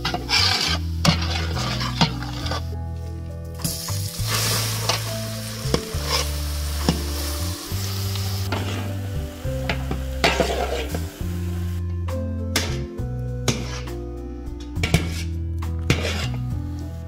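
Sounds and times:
spatula scraping pan: 0:00.0 - 0:02.8, 0:05.7 - 0:07.1, 0:08.4 - 0:09.0, 0:09.7 - 0:11.0, 0:13.5 - 0:14.0, 0:14.8 - 0:16.5
background music: 0:00.0 - 0:17.0
spices sizzling in oil: 0:03.6 - 0:11.8.

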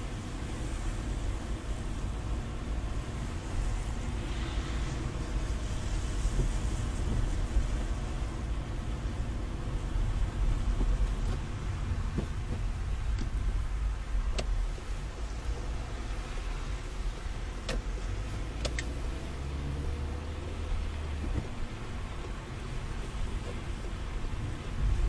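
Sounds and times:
car engine and road rumble: 0:00.0 - 0:25.0
tyres hissing on wet road: 0:00.0 - 0:25.0.

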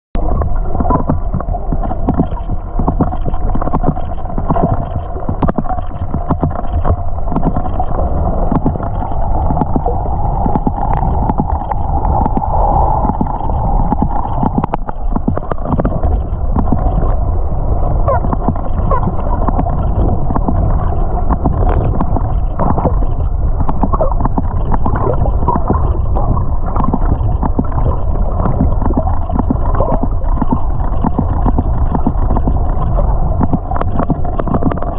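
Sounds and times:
underwater rushing water: 0:00.2 - 0:34.9
dolphin clicks: 0:00.8 - 0:17.1
dolphin whistles: 0:01.4 - 0:03.1.

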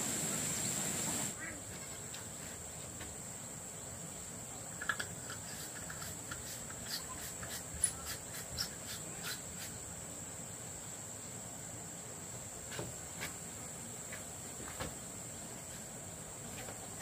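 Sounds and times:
insects droning: 0:00.0 - 0:17.0.

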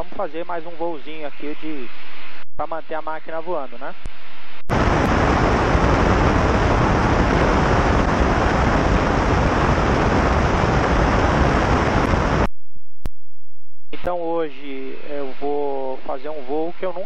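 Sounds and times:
faint steady hum: 0:00.0 - 0:17.0
aircraft engine: 0:04.7 - 0:12.5
rushing wind: 0:04.7 - 0:12.5.

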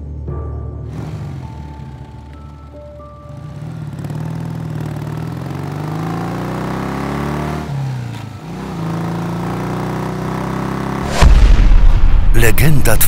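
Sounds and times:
motorcycle engine pulling away: 0:00.9 - 0:11.1.

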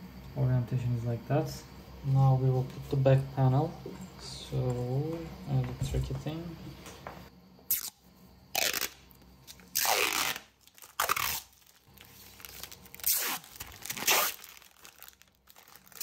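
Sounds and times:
plastic sheet crinkling: 0:08.6 - 0:16.0.

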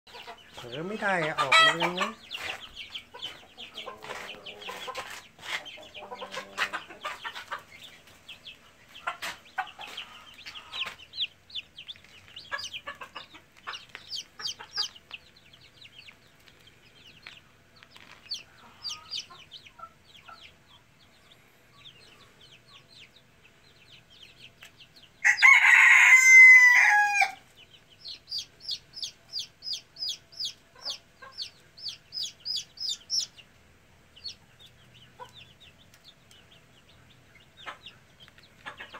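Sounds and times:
chicks peeping and clucking: 0:00.1 - 0:38.9
young cockerel crowing: 0:25.2 - 0:27.4.

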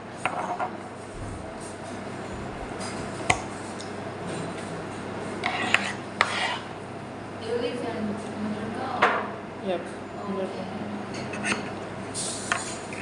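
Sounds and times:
steady room hum: 0:00.0 - 0:13.0.

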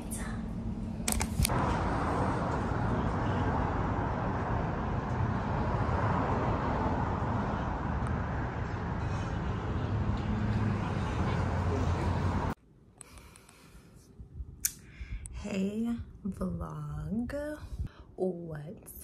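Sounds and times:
cars passing: 0:01.4 - 0:12.6.

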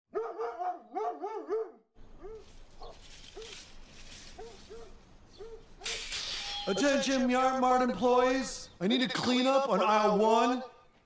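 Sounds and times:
dog barking: 0:00.1 - 0:03.5, 0:04.4 - 0:05.7.

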